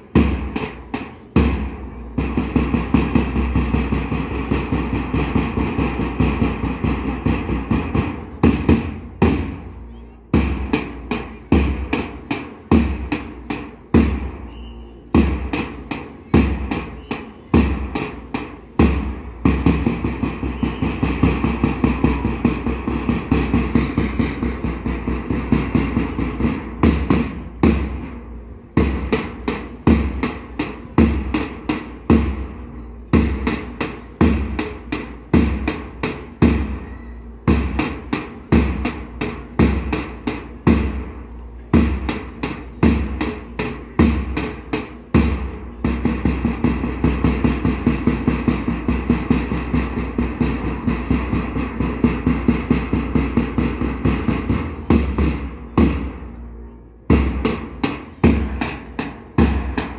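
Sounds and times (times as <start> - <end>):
drum beating steady pattern: 0.0 - 59.9
fast drum roll: 17.5 - 28.0, 41.7 - 56.3, 57.1 - 59.9.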